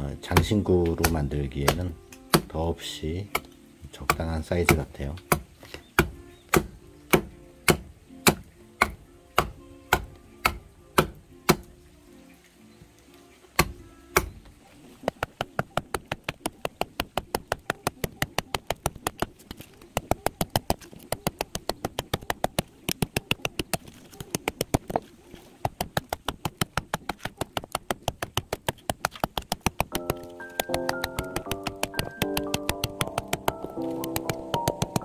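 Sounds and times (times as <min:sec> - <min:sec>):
background music: 0:00.0 - 0:15.4, 0:29.7 - 0:35.0
hand tool chopping wood: 0:00.2 - 0:02.6, 0:03.3 - 0:11.7, 0:13.6 - 0:14.4, 0:15.0 - 0:35.0.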